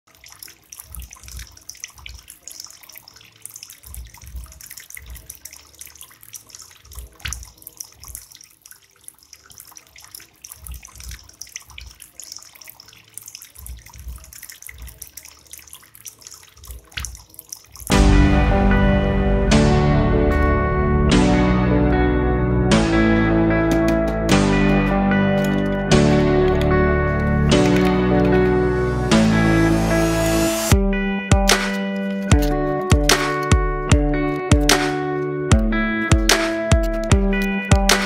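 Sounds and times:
fountain water trickling and splashing: 0:00.0 - 0:17.9.

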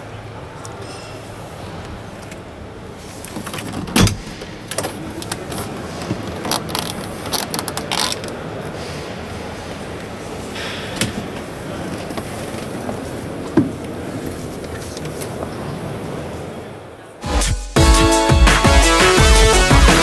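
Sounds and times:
steady background noise: 0:00.0 - 0:17.4.

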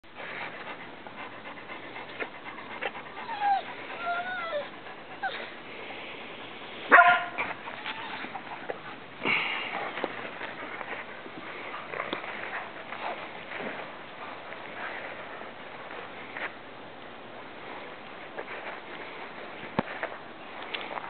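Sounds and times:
dog whining: 0:03.0 - 0:05.5, 0:07.6 - 0:08.7
dog barking: 0:06.9 - 0:07.4.

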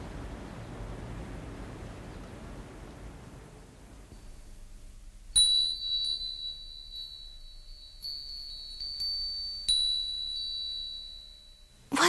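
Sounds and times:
high clear chime ringing: 0:05.3 - 0:12.0.

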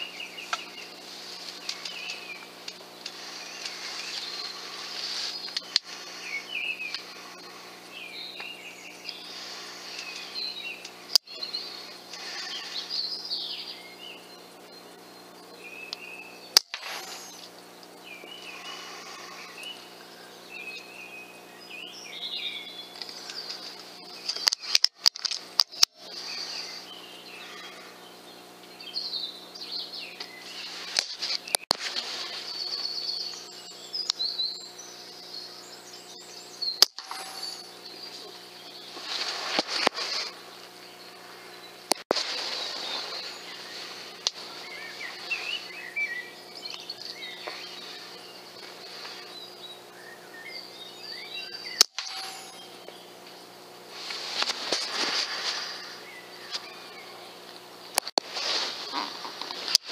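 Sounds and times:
birds chirping and singing: 0:00.0 - 0:59.9
low electronic hum: 0:00.0 - 0:59.9
sharp clicks: 0:16.6 - 0:18.0, 0:51.8 - 0:52.6.

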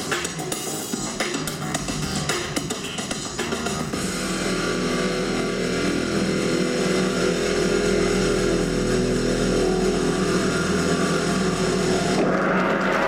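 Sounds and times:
held low music tones: 0:03.9 - 0:13.0.

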